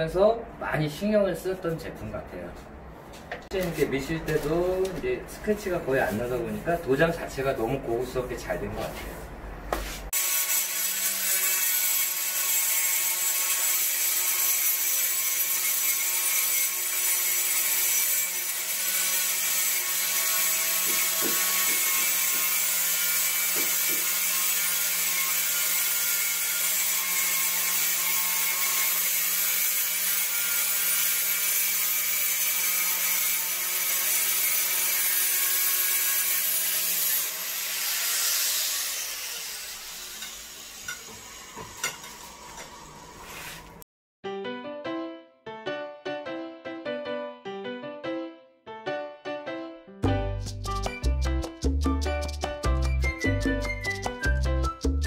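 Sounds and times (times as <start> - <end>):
angle grinder grinding tile: 10.1 - 43.8.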